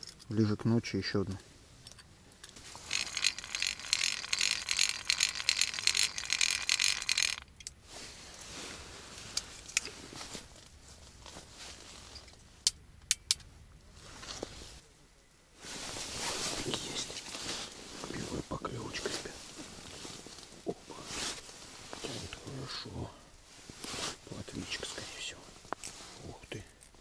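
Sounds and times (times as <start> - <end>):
sharp clicks: 1.9 - 7.8, 12.6 - 13.5
fishing reel clicking rapidly: 2.8 - 7.5.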